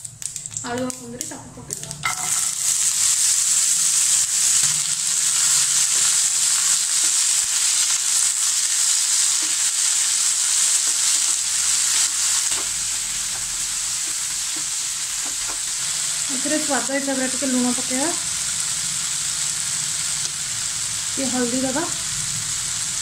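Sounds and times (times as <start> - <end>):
vegetables sizzling in hot oil: 0.0 - 23.0.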